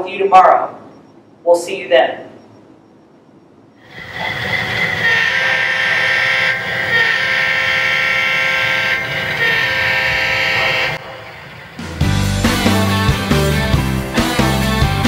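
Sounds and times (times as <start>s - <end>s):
train engine and wheels rumble: 2.4s - 15.0s
locomotive horn blasts: 3.9s - 11.3s.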